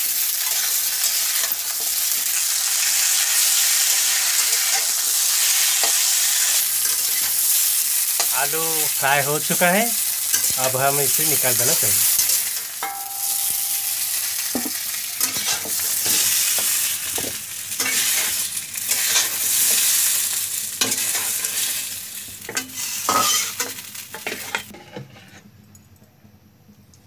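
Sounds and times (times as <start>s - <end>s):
food sizzling in hot oil: 0.0s - 24.8s
metal spatula scraping pan: 12.2s - 19.4s, 22.5s - 25.5s.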